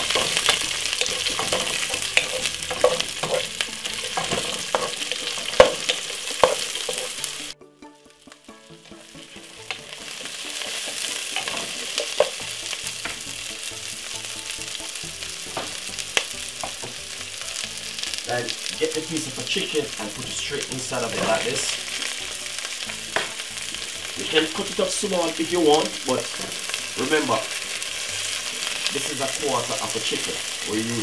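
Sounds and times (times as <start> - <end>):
vegetables sizzling in hot oil: 0.0 - 7.6, 8.2 - 31.0
wooden spoon scraping a pot: 0.0 - 7.6, 9.0 - 13.2, 18.1 - 22.2.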